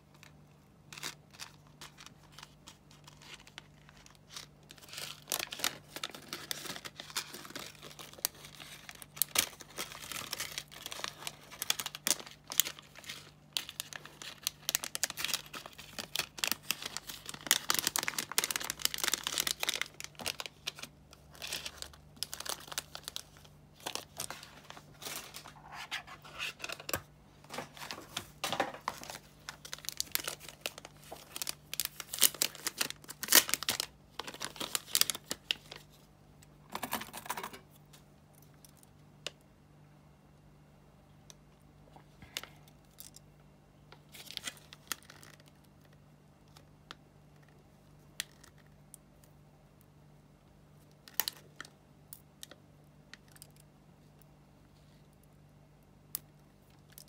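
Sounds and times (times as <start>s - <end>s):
plastic bags crinkling: 0.1s - 35.9s.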